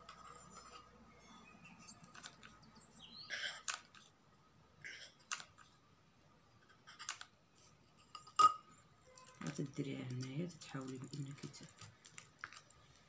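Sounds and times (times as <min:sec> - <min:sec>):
craft materials rustling: 0:09.0 - 0:13.0.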